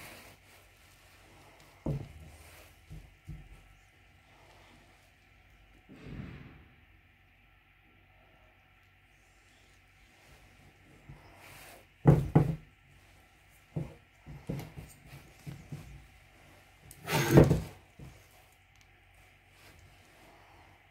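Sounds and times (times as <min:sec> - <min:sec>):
handling thunks and knocks: 0:12.0 - 0:12.7, 0:17.0 - 0:18.2.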